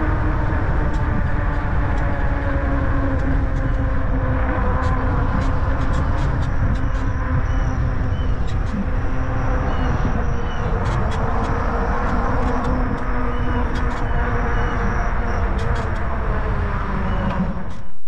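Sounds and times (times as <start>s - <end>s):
wind on microphone: 0.0s - 18.0s.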